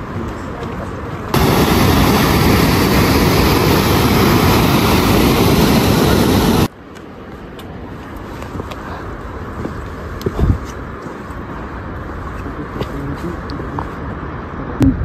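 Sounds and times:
water rushing over rocks: 0:01.3 - 0:06.7.

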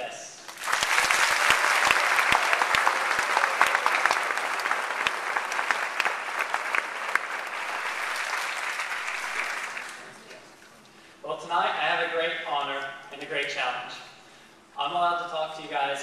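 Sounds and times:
audience applauding: 0:00.4 - 0:10.3.

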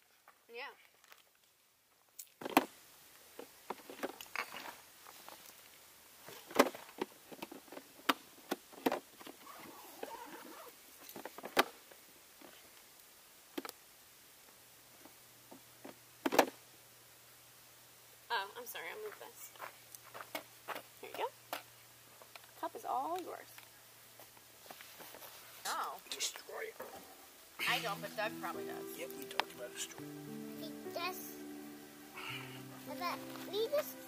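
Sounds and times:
sticks rustling: 0:31.4 - 0:34.0.

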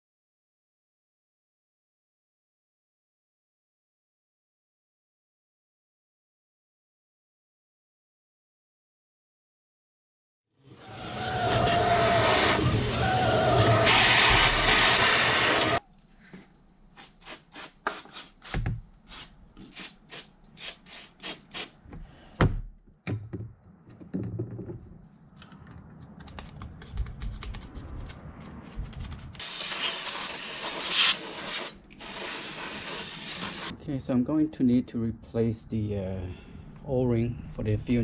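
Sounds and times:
shop vacuum running: 0:10.7 - 0:15.8
aerosol spray can hissing: 0:13.6 - 0:15.8, 0:29.4 - 0:33.7.

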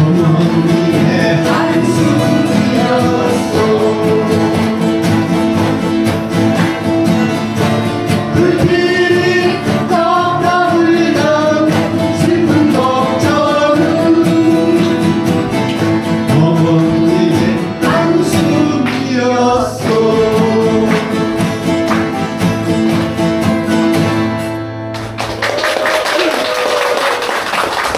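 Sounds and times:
voices singing: 0:00.0 - 0:21.8
acoustic guitars strumming: 0:00.0 - 0:25.5.

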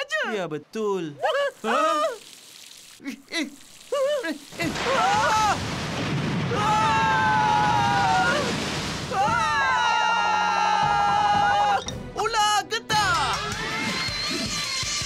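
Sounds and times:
sea waves crashing: 0:04.5 - 0:09.6.

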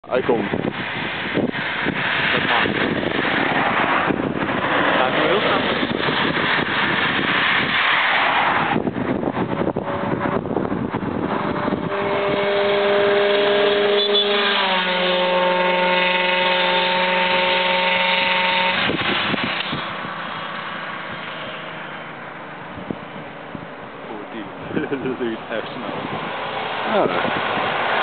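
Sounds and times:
passing traffic hum: 0:00.0 - 0:28.0
vehicle horn chord: 0:11.8 - 0:18.8.

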